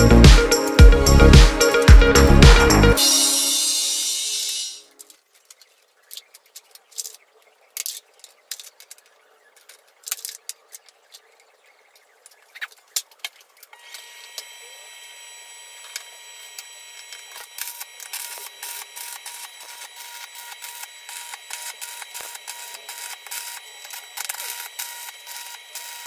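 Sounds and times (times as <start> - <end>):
welding machine whine: 13.8 - 26.0.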